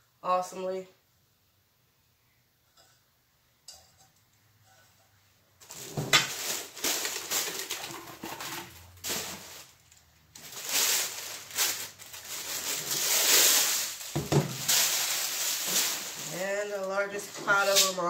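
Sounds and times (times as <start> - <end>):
plastic packaging rustling: 5.6 - 18.0.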